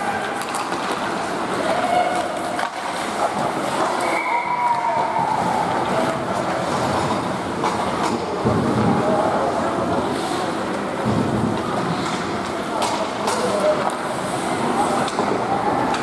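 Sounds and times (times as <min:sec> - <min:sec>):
skates scraping ice: 0:00.0 - 0:16.0
stick and puck clacks: 0:00.1 - 0:09.1, 0:10.3 - 0:16.0
faint distant shouts: 0:04.0 - 0:05.7.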